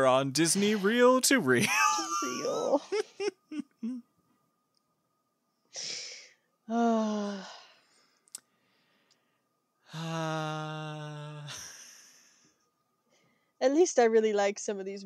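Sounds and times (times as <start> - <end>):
person sighing: 9.9 - 12.4.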